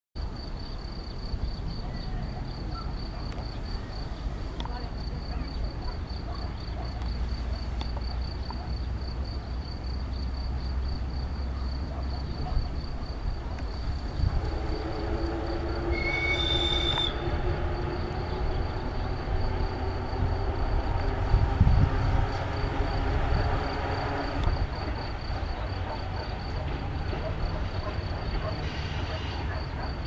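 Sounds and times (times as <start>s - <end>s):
electric train rumbling on track: 0.2s - 30.0s
high wheel squeal: 14.3s - 17.6s.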